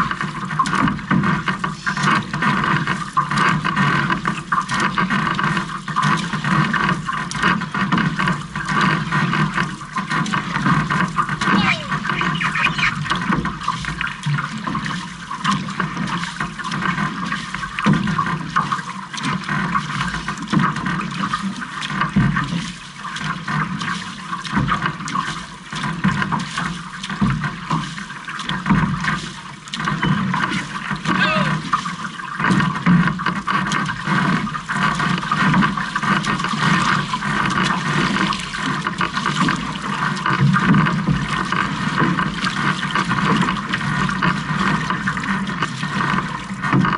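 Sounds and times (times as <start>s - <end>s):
water rushing along canoe hull: 0.0s - 46.9s.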